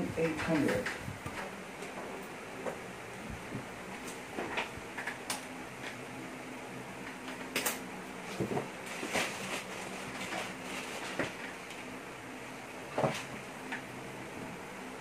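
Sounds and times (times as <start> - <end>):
disc drive clicks and whirs: 0.0 - 8.8, 12.8 - 15.0.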